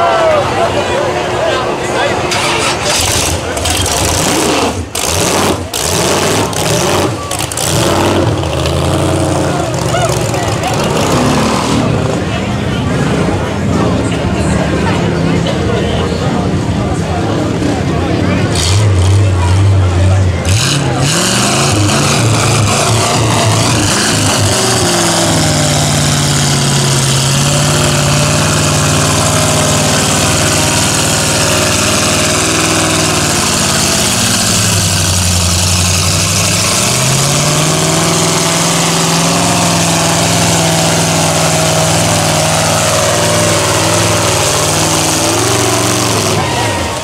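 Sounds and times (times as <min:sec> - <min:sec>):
truck engine revving: 0:00.0 - 0:47.0.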